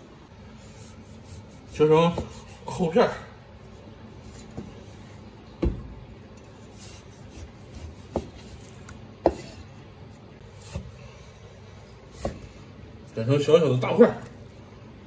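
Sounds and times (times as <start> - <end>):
knife scraping through meat: 0.5 - 2.8, 6.5 - 9.7.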